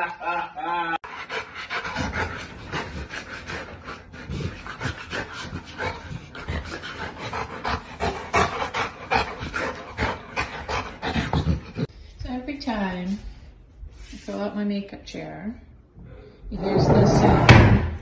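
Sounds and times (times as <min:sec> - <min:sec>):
dog panting: 0:01.0 - 0:12.0.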